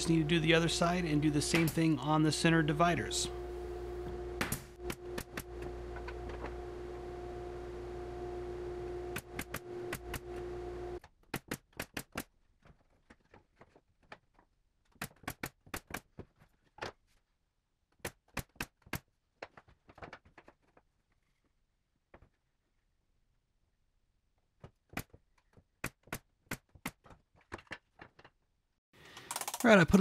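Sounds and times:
motor hum: 0.0s - 11.0s.

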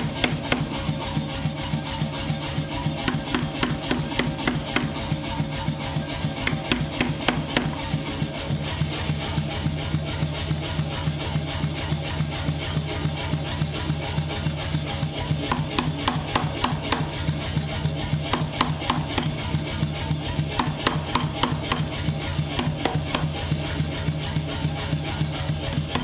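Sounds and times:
power hammer blows on steel: 0.0s - 1.2s, 2.8s - 8.6s, 15.2s - 26.0s
motor hum: 0.0s - 26.0s.

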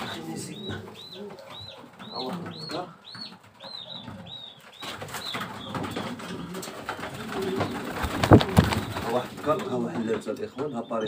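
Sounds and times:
pigeons cooing: 0.0s - 11.0s
high chirping calls: 0.1s - 6.2s, 7.4s - 9.3s.

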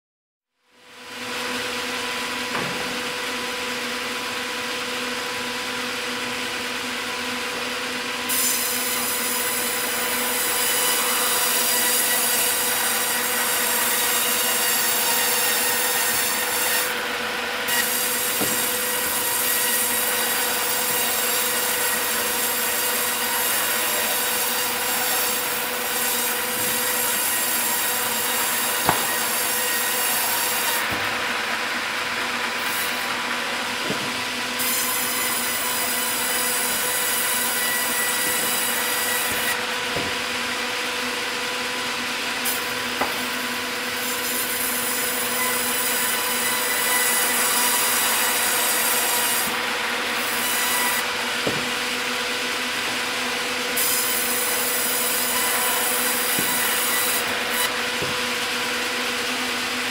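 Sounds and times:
saw cutting wood: 0.9s - 59.9s
machine hum: 22.0s - 34.6s
sharp knocks: 28.8s - 29.2s.

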